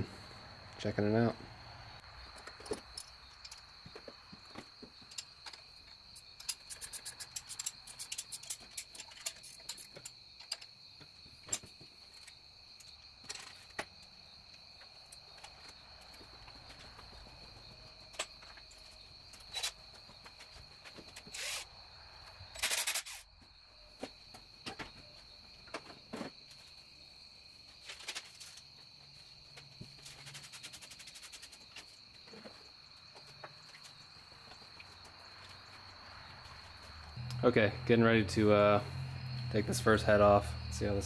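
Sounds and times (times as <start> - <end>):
metallic clicks of hand tools: 6.4 - 10.7
faint high whine: 37.0 - 41.0.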